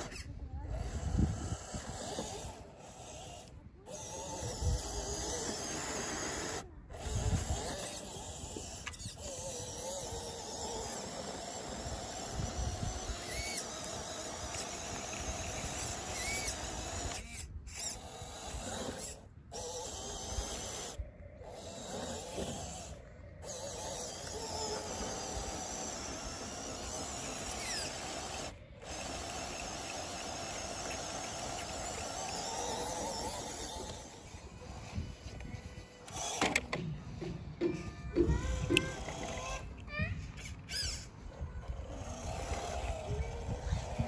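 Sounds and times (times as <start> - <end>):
tyres churning sand: 0.0 - 40.0
electric motor and gear whir: 0.0 - 44.0.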